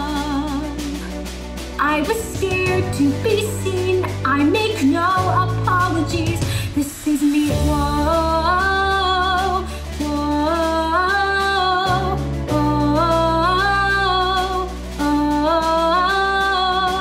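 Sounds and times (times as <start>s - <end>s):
woman singing wordless phrases: 0.0s - 1.2s, 1.8s - 17.0s
pop backing track with bass: 0.0s - 17.0s.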